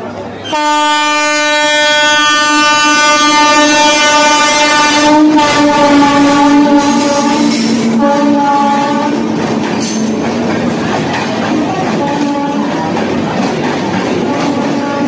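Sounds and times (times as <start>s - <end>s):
moving train noise: 0.0s - 15.0s
locomotive horn blast: 0.4s - 9.4s, 12.0s - 12.8s, 14.5s - 15.0s.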